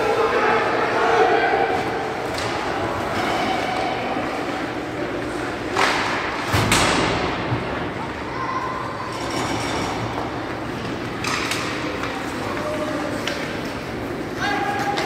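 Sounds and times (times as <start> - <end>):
echoing din of voices: 0.0 - 15.0
hockey sticks and puck knocking: 5.7 - 7.6, 9.9 - 15.0.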